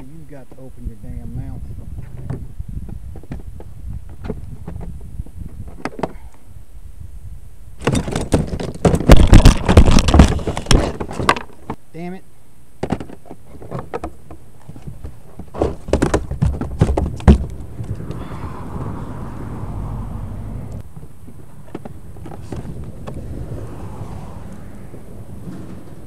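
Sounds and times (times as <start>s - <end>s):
knocks and thumps on kayak: 7.8s - 11.8s, 12.8s - 17.6s
soft rushing noise: 17.5s - 26.0s.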